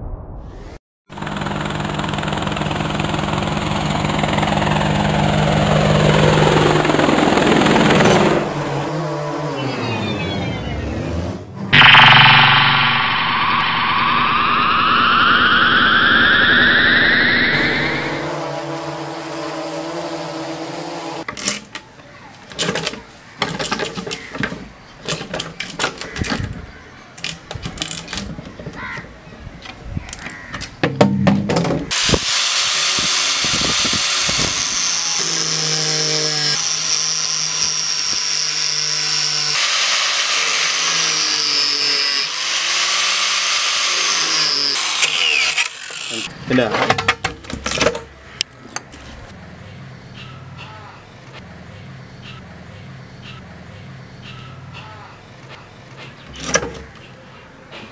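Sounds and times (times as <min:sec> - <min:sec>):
drone propellers buzzing: 0:01.3 - 0:21.3.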